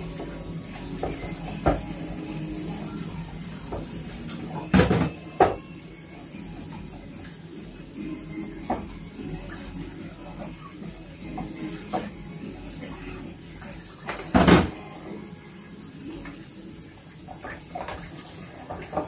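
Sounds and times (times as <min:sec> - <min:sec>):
tap water running: 0:00.0 - 0:19.0
dishes knocking in sink: 0:04.6 - 0:05.6.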